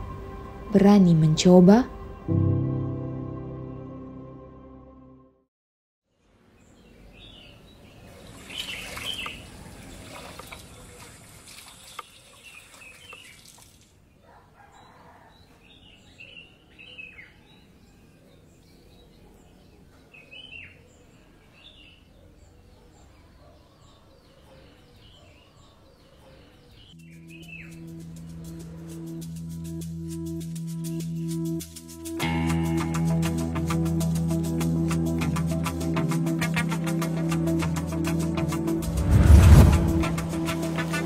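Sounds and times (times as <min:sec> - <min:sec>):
small birds chirping: 0:06.1 - 0:32.3
steady rushing noise: 0:38.8 - 0:41.0.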